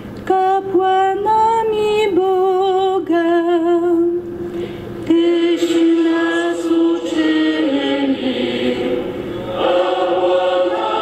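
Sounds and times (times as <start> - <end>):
congregation singing in unison: 5.1 - 11.0.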